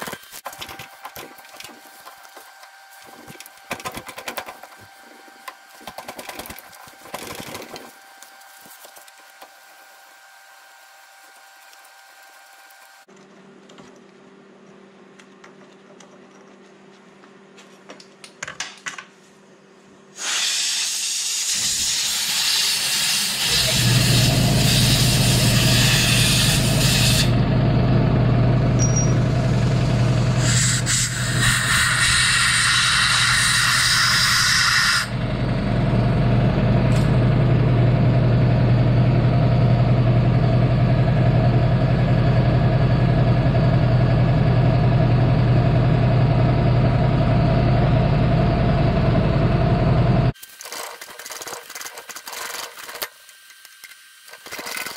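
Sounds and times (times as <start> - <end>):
air hose hissing: 20.2 - 23.7, 30.4 - 35.1
air compressor humming: 23.1 - 33.9, 34.9 - 50.4.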